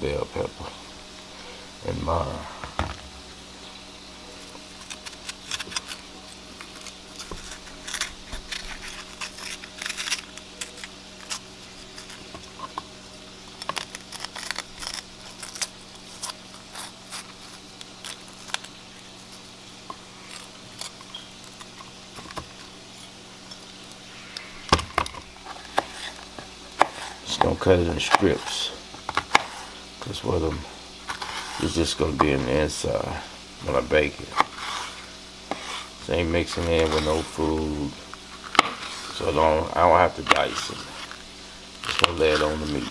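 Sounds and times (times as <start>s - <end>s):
steady low hum: 0.0s - 42.9s
pepper tearing with crackles: 4.3s - 30.2s, 40.0s - 42.9s.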